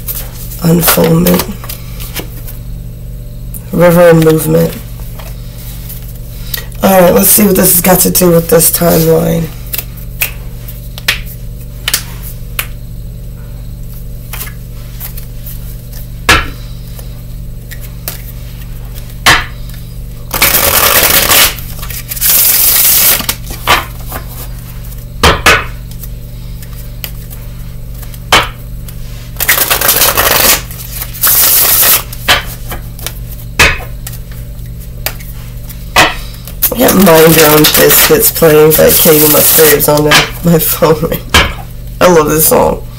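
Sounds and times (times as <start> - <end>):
cards rushing through shuffle: 16.9 - 25.0, 28.8 - 35.8
cards tapping and slapping: 20.3 - 24.2, 29.4 - 34.3.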